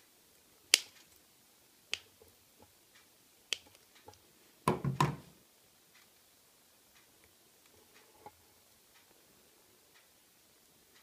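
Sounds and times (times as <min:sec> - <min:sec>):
knocks and handling noise: 0:03.6 - 0:05.4.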